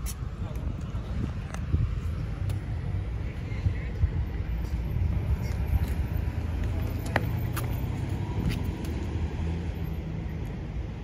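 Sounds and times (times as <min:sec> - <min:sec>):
wind buffeting microphone: 0:00.0 - 0:06.9.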